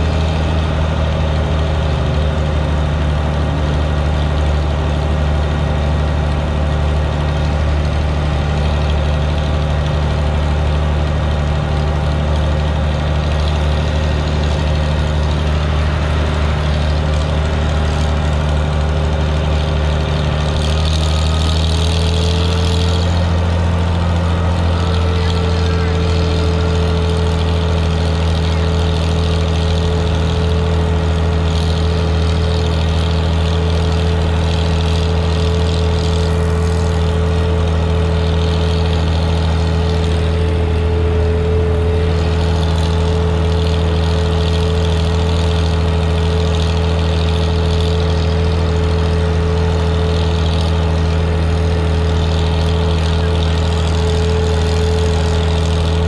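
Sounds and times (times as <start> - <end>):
tractor engine droning: 0.0 - 56.0.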